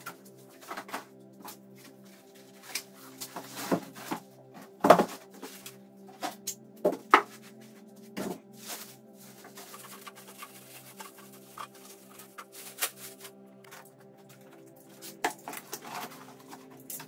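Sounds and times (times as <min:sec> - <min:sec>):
quiet background music: 0:00.0 - 0:17.0
cardboard and foam scraping and rustling: 0:01.8 - 0:05.7, 0:07.2 - 0:13.8.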